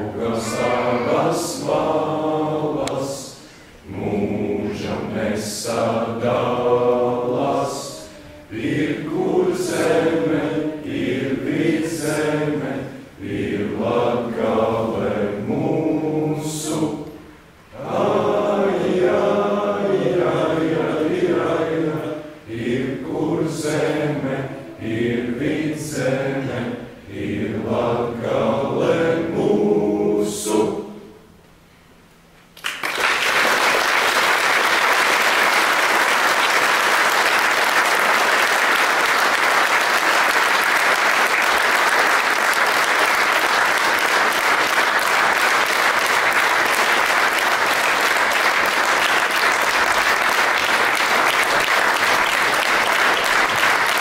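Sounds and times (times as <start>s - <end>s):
young voices singing in choir: 0.0s - 31.3s
audience applause: 32.6s - 54.0s.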